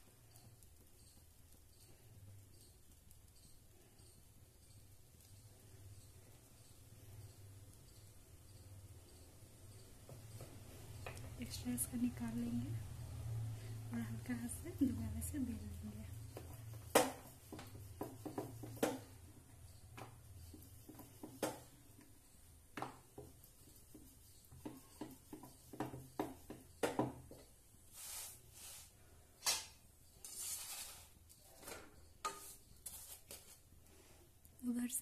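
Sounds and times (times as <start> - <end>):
metal spatula scraping iron pan: 30.2 - 31.2, 32.2 - 33.5.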